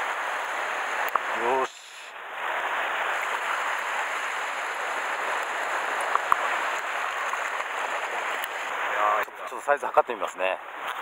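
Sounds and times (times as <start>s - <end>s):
surf fizzing over rocks: 0.0s - 11.0s.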